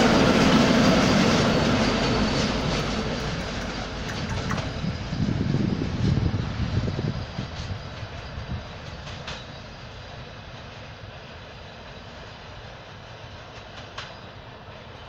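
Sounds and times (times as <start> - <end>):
freight train rumble: 0.0 - 15.0
faint clicks from rails: 2.5 - 5.0, 7.5 - 9.8, 13.4 - 15.0.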